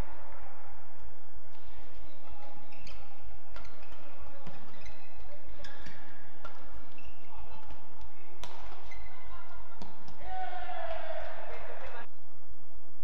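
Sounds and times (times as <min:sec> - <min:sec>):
rackets hitting shuttlecock: 0:00.0 - 0:12.1
shoes squeaking on court: 0:01.5 - 0:10.2.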